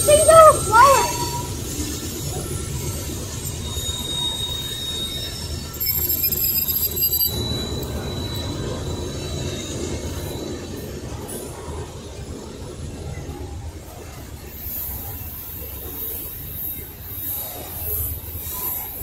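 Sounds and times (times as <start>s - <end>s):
high-pitched wheel squeal: 0.0s - 11.2s
train wheels rumbling on rail: 0.0s - 19.0s.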